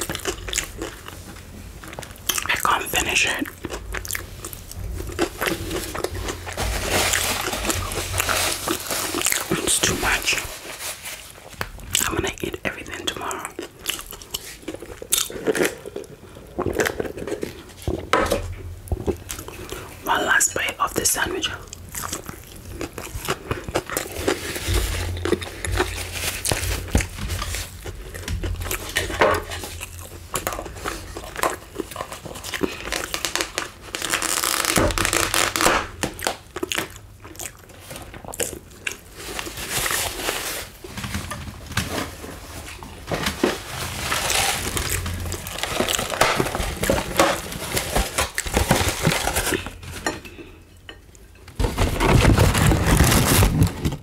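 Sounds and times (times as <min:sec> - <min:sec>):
chewing food: 0:00.0 - 0:10.4, 0:11.5 - 0:18.1, 0:18.9 - 0:20.0, 0:20.9 - 0:34.6, 0:36.0 - 0:40.4, 0:44.1 - 0:49.8
paper wrappers crinkling: 0:00.0 - 0:18.2, 0:19.1 - 0:37.0, 0:37.6 - 0:50.2, 0:51.5 - 0:54.0.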